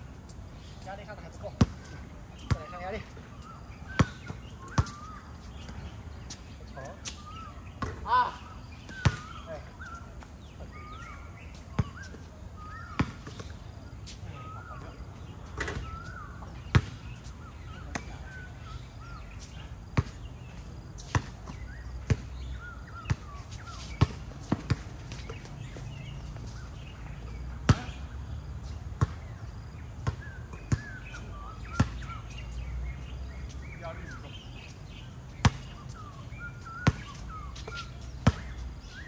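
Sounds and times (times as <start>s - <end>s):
basketballs bouncing on a hard court: 1.0s - 3.3s, 3.9s - 5.9s, 7.8s - 9.6s, 11.7s - 12.1s, 12.8s - 13.5s, 14.8s - 17.1s, 19.9s - 20.2s, 21.0s - 26.3s, 27.6s - 28.1s, 29.0s - 29.3s, 30.0s - 32.2s, 35.3s - 36.0s, 36.7s - 38.6s.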